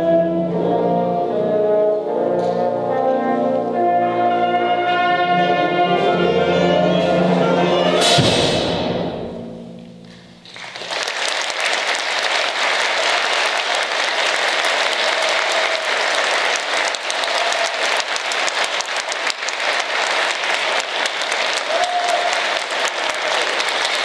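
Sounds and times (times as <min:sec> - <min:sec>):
audience applauding: 0:10.4 - 0:24.0.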